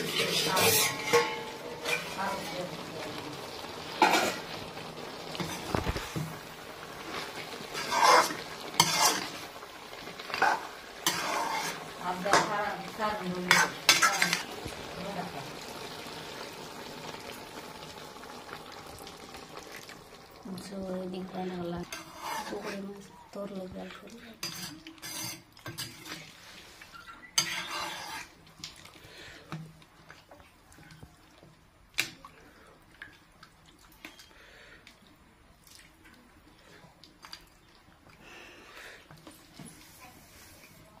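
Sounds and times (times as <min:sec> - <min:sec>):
metal spatula scraping pan: 0:00.0 - 0:02.8, 0:04.0 - 0:04.6, 0:07.0 - 0:09.6, 0:10.2 - 0:14.5, 0:21.8 - 0:23.1, 0:24.2 - 0:28.4
frying sizzle: 0:00.0 - 0:41.0.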